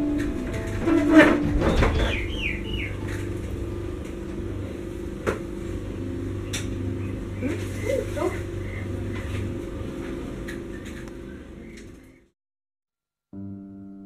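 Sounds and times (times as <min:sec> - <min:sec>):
steady low hum: 0:00.0 - 0:12.3.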